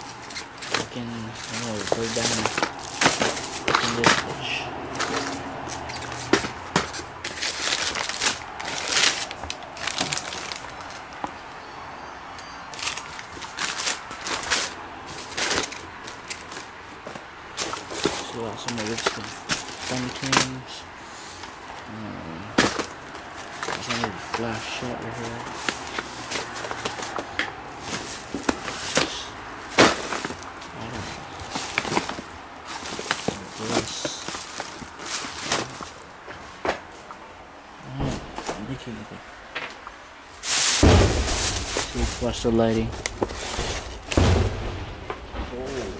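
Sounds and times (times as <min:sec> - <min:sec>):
tissue paper crinkling: 0:00.0 - 0:11.2, 0:27.8 - 0:36.1, 0:40.3 - 0:44.2
cardboard boxes being handled: 0:00.0 - 0:11.3, 0:12.7 - 0:20.6, 0:22.5 - 0:37.1, 0:40.4 - 0:45.9
sharp knocks: 0:40.8 - 0:45.9.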